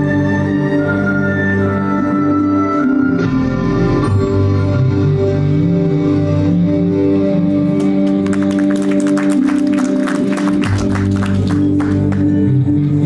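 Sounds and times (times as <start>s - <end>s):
background music with sustained tones: 0.0s - 13.0s
audience clapping: 7.7s - 12.5s.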